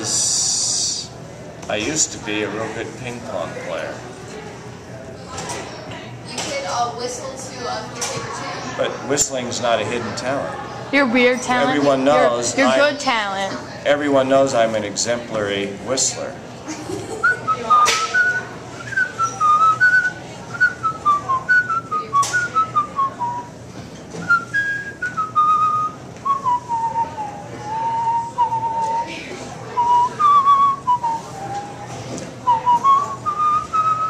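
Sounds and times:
man whistling a tune: 17.3 - 23.5, 24.2 - 29.1, 29.8 - 34.0.

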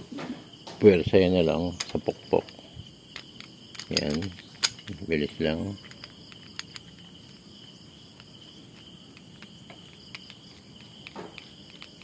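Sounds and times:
high-pitched insect chirring: 1.5 - 12.0
light metallic clicks: 1.8 - 7.1.

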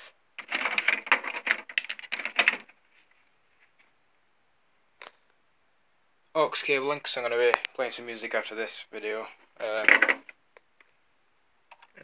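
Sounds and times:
cables clattering and rustling: 0.4 - 3.9, 9.7 - 10.4.

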